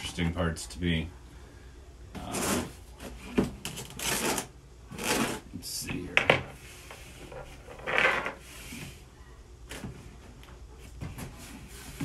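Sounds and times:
cardboard box scraping: 3.8s - 5.5s.

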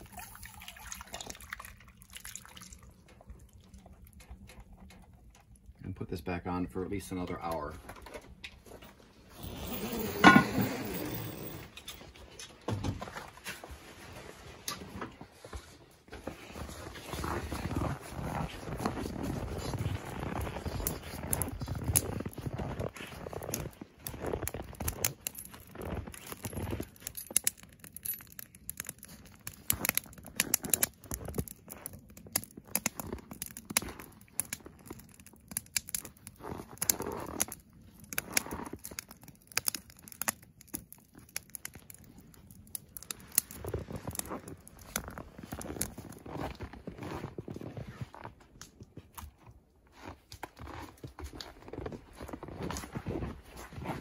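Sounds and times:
wood fire crackling and popping: 0.0s - 54.0s
footsteps crunching in snow: 13.1s - 26.8s, 43.6s - 48.5s, 49.2s - 54.0s.

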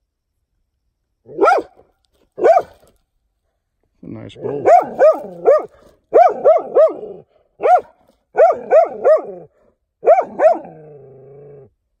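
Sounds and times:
dog barking: 1.3s - 1.8s, 2.4s - 2.8s, 4.4s - 10.8s.

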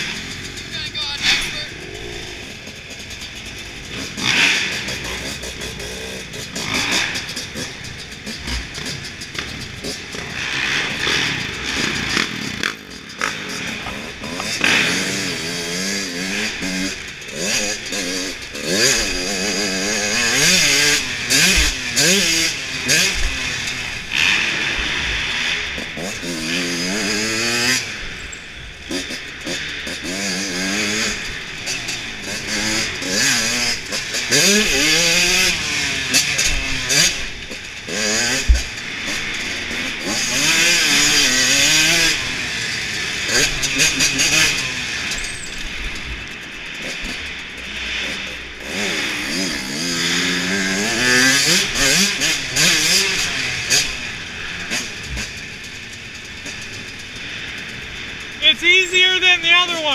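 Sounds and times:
motocross bike engine revving: 0.0s - 59.9s.

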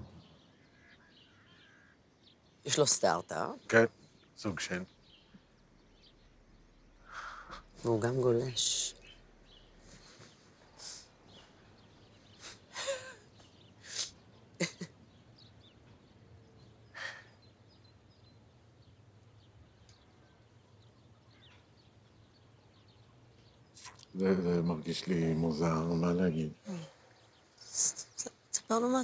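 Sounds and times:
person stifled laughing: 12.4s - 13.3s, 13.9s - 15.0s.

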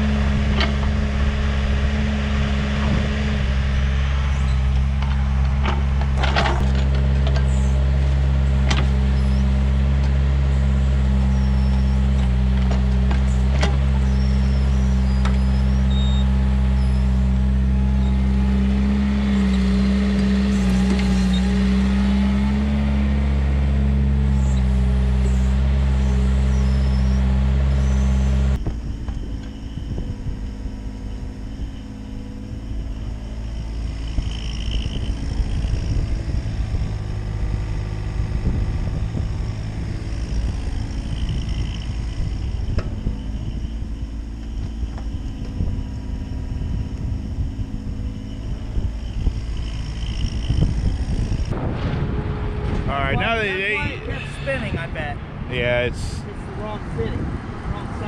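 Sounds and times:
excavator diesel engine running: 0.0s - 58.0s
uneven low rumble: 27.8s - 58.0s.

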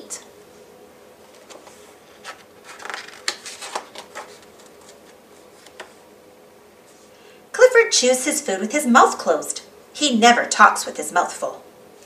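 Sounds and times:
paper page turning: 1.2s - 6.0s.

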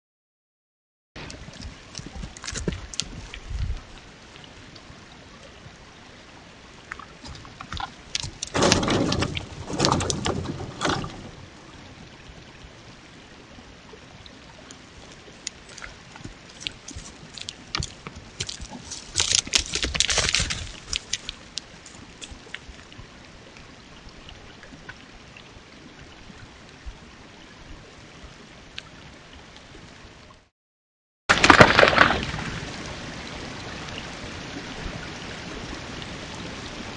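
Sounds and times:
creek hiss: 1.2s - 10.0s, 10.6s - 30.4s
hoof knocks and scuffs: 15.7s - 22.5s.

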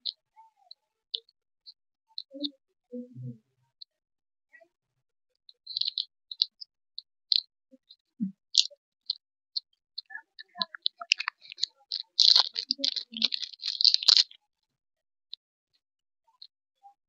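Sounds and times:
plastic wrapper crinkling: 10.6s - 14.4s.

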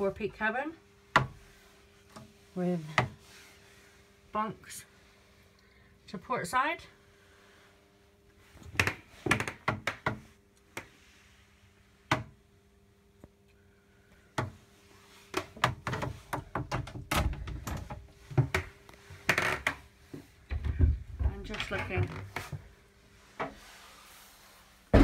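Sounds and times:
faint steady hum: 0.0s - 25.0s
wooden doors knocking and clicking: 15.6s - 18.7s, 20.5s - 22.1s.

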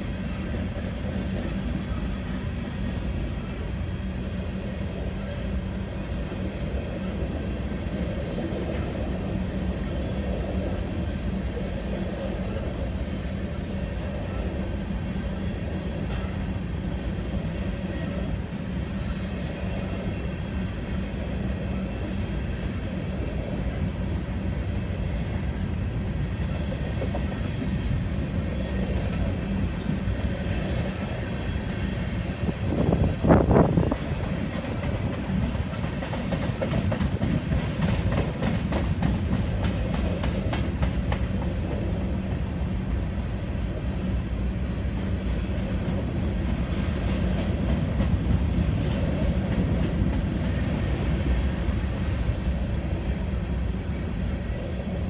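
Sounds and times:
freight train wheels rumbling: 0.0s - 55.0s
wheels clacking over rail joints: 33.3s - 41.9s.

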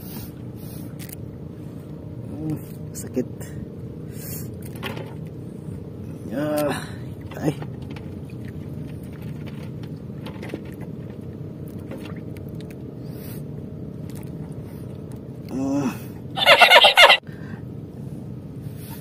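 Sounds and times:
steady low hum: 0.0s - 19.0s
man groaning in pain: 15.5s - 16.2s.

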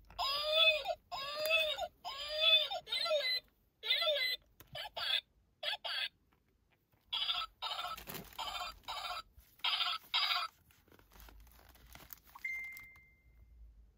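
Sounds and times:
toy baby-voice sounds: 0.1s - 6.2s, 7.1s - 10.6s.

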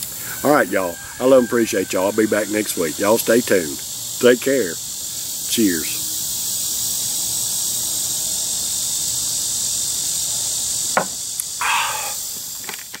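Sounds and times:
insects chorus: 0.0s - 13.0s
sharp knock: 11.0s - 11.2s.

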